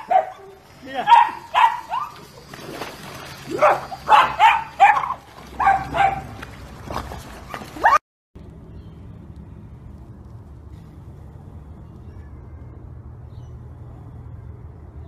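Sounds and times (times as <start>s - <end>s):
dogs barking: 0.0s - 2.3s, 3.5s - 8.0s.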